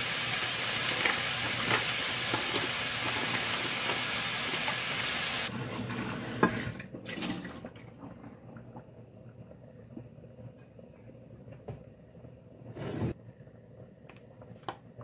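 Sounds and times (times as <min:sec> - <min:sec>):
chicken sizzling in frying pan: 0:00.0 - 0:05.5.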